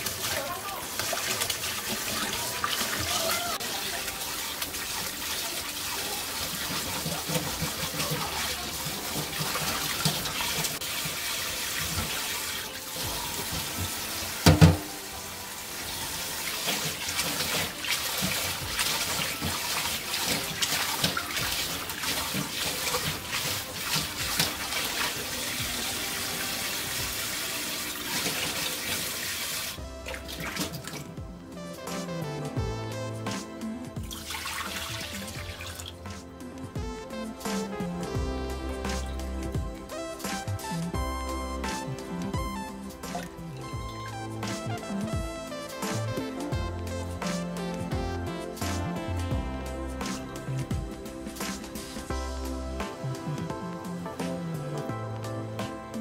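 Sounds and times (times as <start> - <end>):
splashing and swishing water: 0.0 - 31.2, 33.3 - 36.4, 41.6 - 46.3, 50.0 - 52.2
tap water running into bowl: 0.0 - 31.2.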